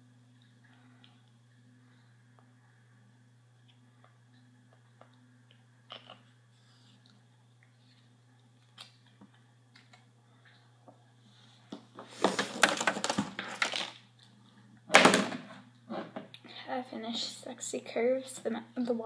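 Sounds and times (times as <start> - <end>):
plastic packaging rattling and rustling: 12.1 - 14.0.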